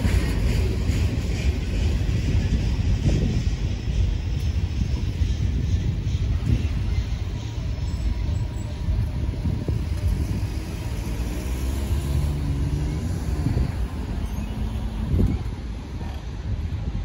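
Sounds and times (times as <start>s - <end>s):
steady low rumble: 0.0s - 17.0s
cars driving over railroad crossing: 5.5s - 17.0s
car engine accelerating: 10.0s - 15.2s.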